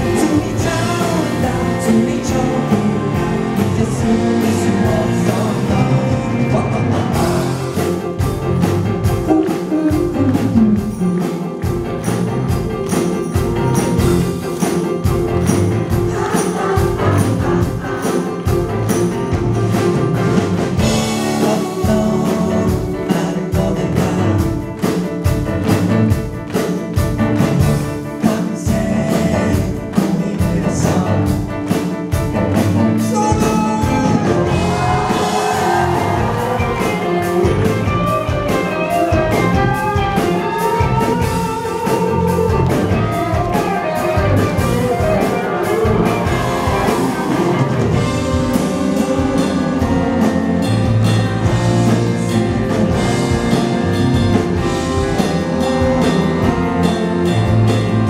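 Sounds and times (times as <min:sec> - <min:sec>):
live rock band: 0:00.0 - 0:58.0
melody line: 0:33.1 - 0:40.1.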